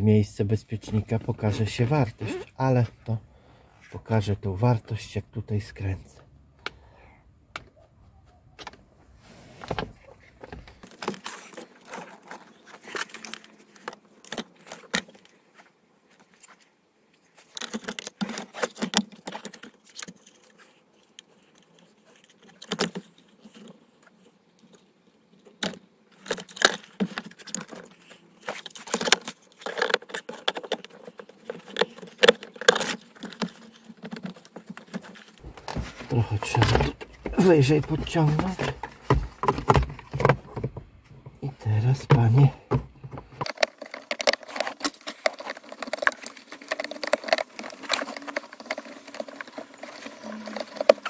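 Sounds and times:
hard plastic clicking and rattling: 25.5s - 51.0s.

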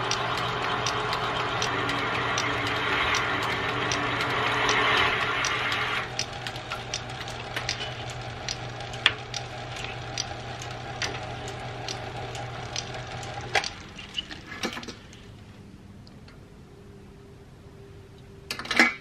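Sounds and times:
lathe motor hum: 0.0s - 14.6s
ticks and clicks from cutting: 0.0s - 15.0s.

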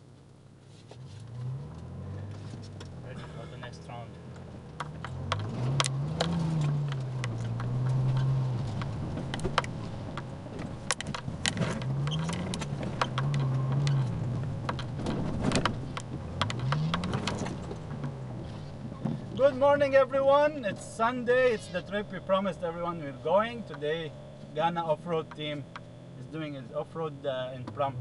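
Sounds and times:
car engine revving: 1.0s - 28.0s.

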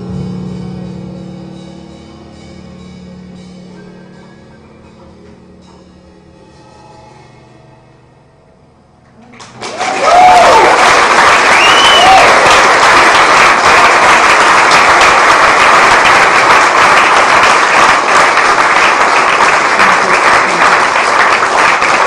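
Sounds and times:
audience applauding: 9.2s - 22.0s
audience cheering: 9.3s - 22.0s.

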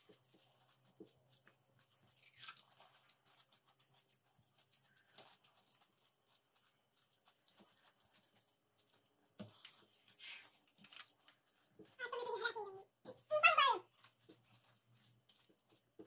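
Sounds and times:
crisp shells crunching: 0.0s - 12.8s
chewing: 0.0s - 16.0s.

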